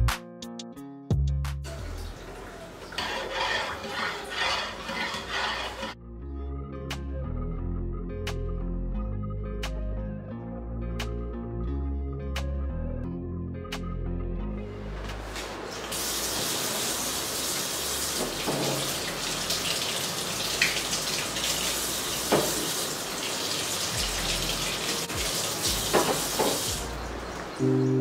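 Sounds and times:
tap water running into steel sink: 15.4s - 27.1s.

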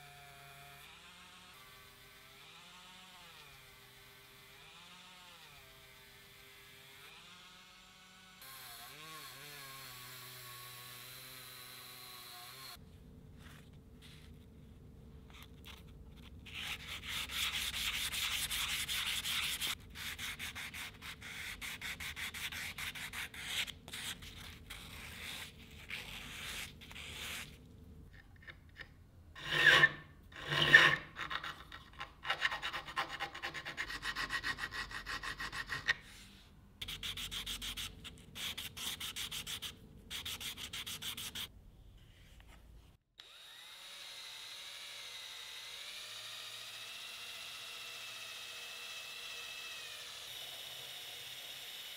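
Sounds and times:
metal part rubbed on sandpaper: 15.3s - 27.6s, 29.4s - 41.5s
power drill with wire wheel: 43.2s - 51.9s.

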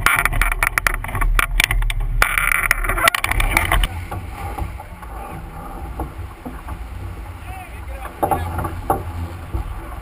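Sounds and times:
water rushing past hull: 0.0s - 10.0s.

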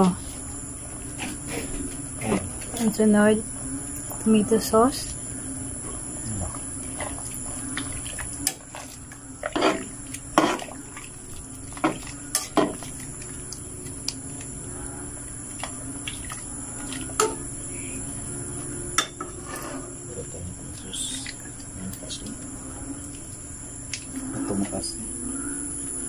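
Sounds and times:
insect trill: 0.0s - 26.0s.

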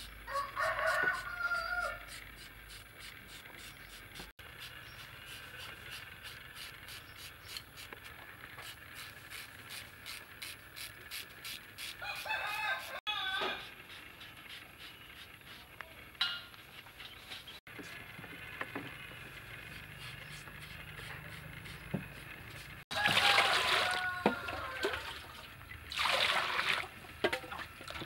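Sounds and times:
rooster crowing: 0.3s - 2.2s, 12.0s - 13.7s, 22.9s - 25.4s.

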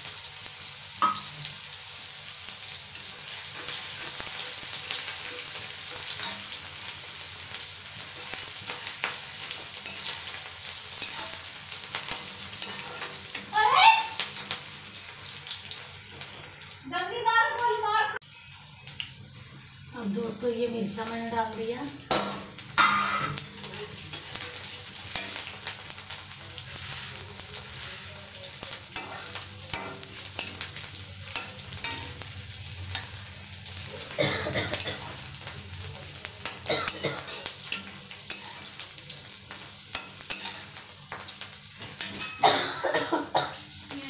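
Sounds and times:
spices sizzling in hot oil: 0.0s - 44.0s
spatula scraping a pan: 8.2s - 13.5s, 22.8s - 32.3s.

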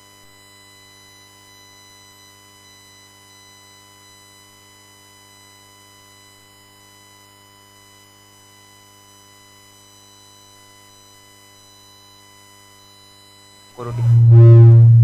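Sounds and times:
electrical hum: 13.8s - 15.0s
high buzz: 13.8s - 15.0s.

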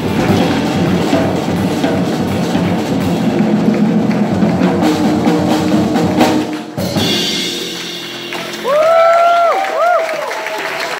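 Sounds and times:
jazz piano trio playing: 0.0s - 9.2s
applause: 7.4s - 10.9s
loud rising whoops: 8.6s - 10.9s.

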